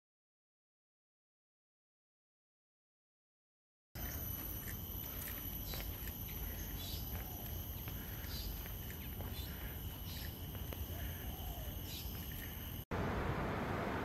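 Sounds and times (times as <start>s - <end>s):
birds chirping: 4.0s - 12.8s
steady high-pitched whine: 4.0s - 14.0s.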